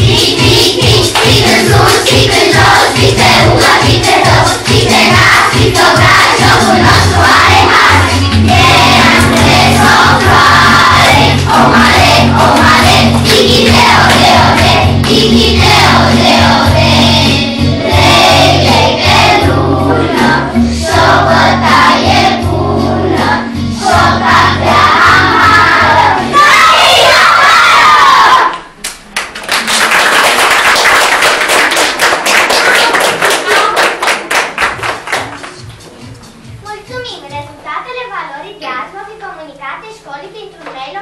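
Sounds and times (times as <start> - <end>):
children singing: 0.0 - 28.5
audience applause: 29.1 - 35.4.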